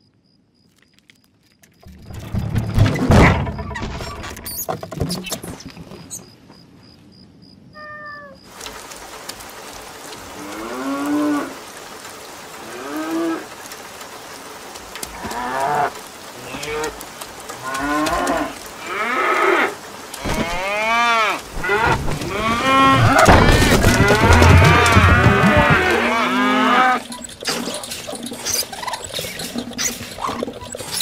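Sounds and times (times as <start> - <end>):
rain hissing: 8.5 - 31.0
cows mooing: 15.1 - 31.0.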